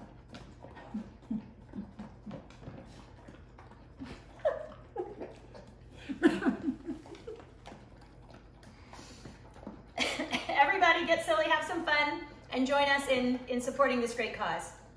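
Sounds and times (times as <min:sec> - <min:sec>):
dog eating from bowls: 0:00.0 - 0:14.9
woman laughing: 0:04.0 - 0:05.4, 0:06.0 - 0:07.4, 0:10.0 - 0:10.9.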